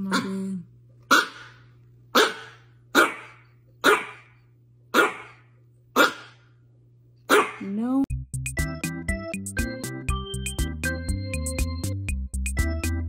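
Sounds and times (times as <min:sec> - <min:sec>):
small dog barking: 0:01.1 - 0:04.3, 0:04.9 - 0:06.4, 0:07.3 - 0:07.7.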